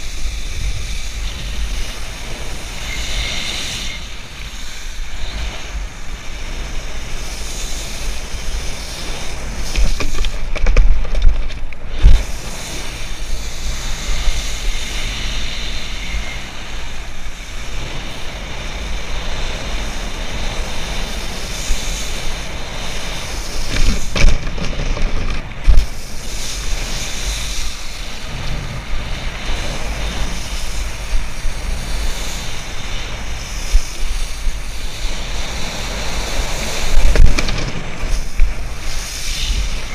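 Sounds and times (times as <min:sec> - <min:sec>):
water spraying hiss: 0:00.0 - 0:10.7, 0:11.7 - 0:39.9
wind buffeting microphone: 0:00.0 - 0:39.9.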